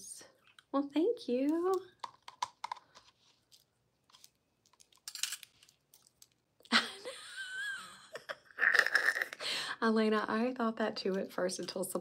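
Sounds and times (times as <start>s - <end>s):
metal bracelets clicking and rattling: 3.5s - 6.4s.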